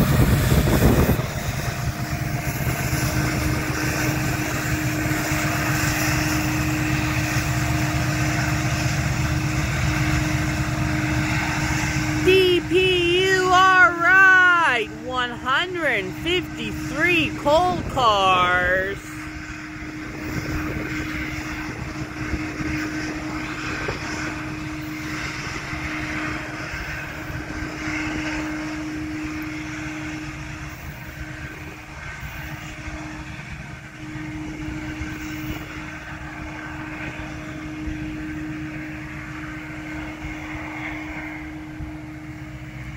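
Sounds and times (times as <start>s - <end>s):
distant diesel locomotives droning: 0.0s - 42.9s.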